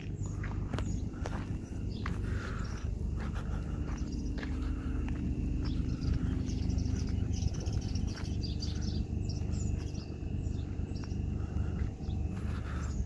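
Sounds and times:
footsteps on dirt: 0.0 - 13.0
small birds chirping: 0.0 - 13.0
steady low rumble: 0.0 - 13.0.

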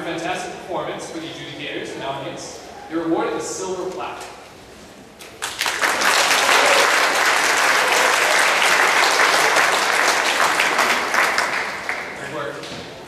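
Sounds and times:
audience applauding: 5.2 - 12.4.

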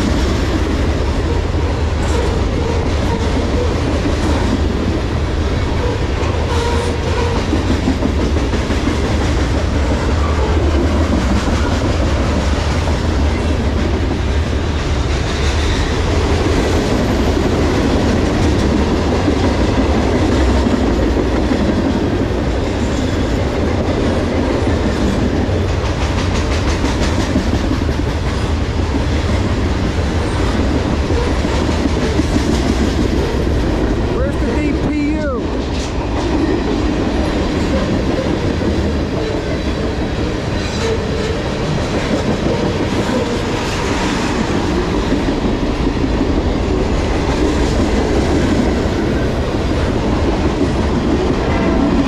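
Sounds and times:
train couplers clattering: 0.0 - 34.7
train wheels rumbling on rail: 0.0 - 52.0.

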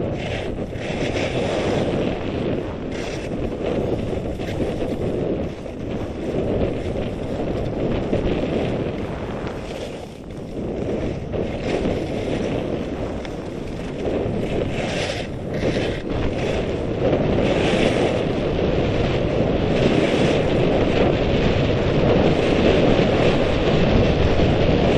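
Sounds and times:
wind buffeting microphone: 0.0 - 24.9
skis hissing over snow: 0.1 - 16.8.

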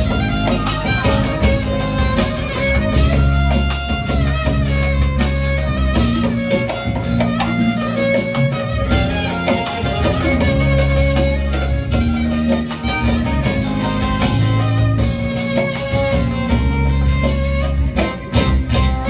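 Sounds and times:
guitar: 0.0 - 19.0
low accompaniment: 0.0 - 19.0
violin: 0.0 - 19.0.

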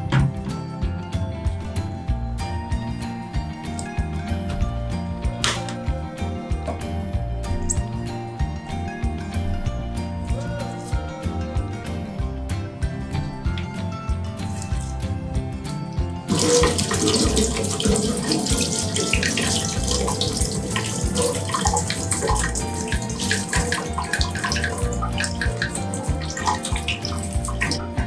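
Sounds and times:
tap water running and splashing: 16.3 - 28.0.

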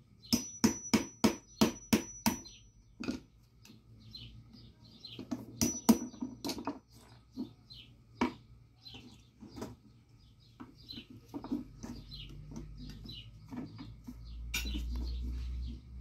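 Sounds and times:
small birds chirping: 0.0 - 16.0
knife and hammer knocking on wood: 0.3 - 3.3, 5.2 - 7.6.

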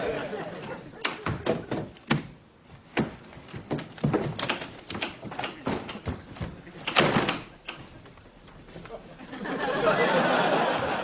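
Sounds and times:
door opening and shutting: 0.6 - 8.2
knocks clicks and scuffs: 1.0 - 9.0.

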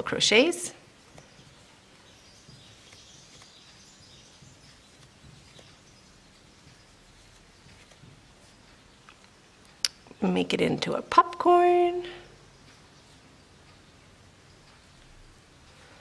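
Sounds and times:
soft yarn rustling: 0.0 - 10.5.

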